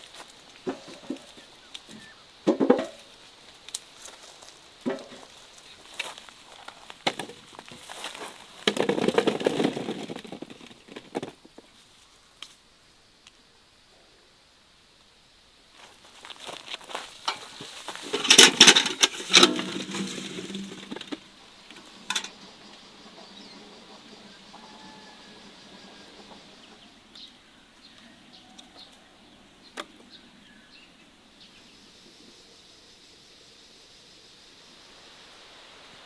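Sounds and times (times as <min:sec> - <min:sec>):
rustling and knocking: 0:00.6 - 0:03.1, 0:04.8 - 0:05.4, 0:07.0 - 0:11.8, 0:16.4 - 0:26.8.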